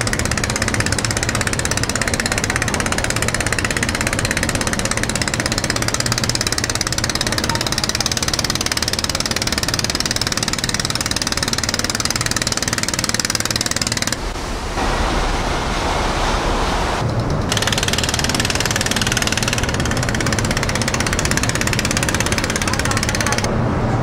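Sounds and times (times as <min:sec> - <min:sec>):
boat engine running at high speed: 0:00.0 - 0:24.0
water rushing of boat wake: 0:13.2 - 0:17.2.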